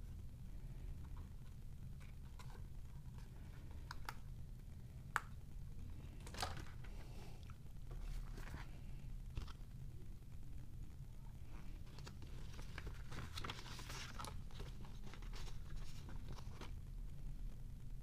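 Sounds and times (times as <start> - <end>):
paper rustling: 7.9 - 9.6, 11.5 - 16.8.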